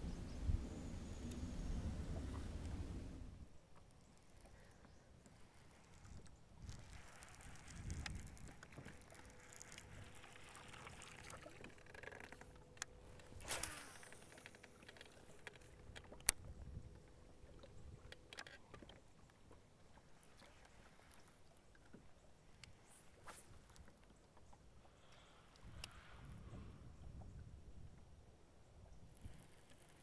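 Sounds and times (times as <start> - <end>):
faint steady tone: 0.0 - 7.4
water lapping against hull: 0.8 - 30.0.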